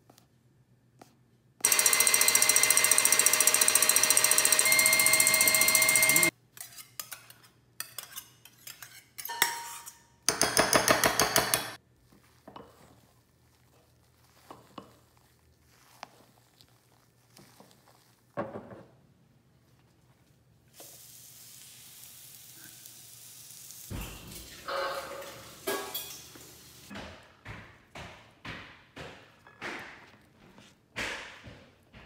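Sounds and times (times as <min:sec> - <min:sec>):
stand mixer whisking: 0:01.6 - 0:06.3
kitchen utensils clattering: 0:23.9 - 0:26.6.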